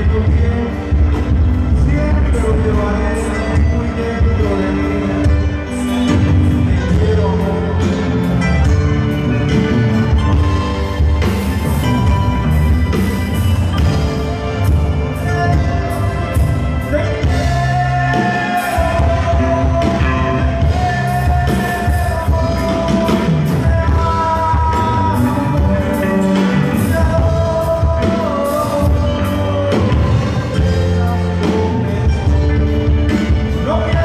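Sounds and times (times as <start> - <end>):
held lead melody: 0.0 - 34.0
live band playing: 0.0 - 34.0.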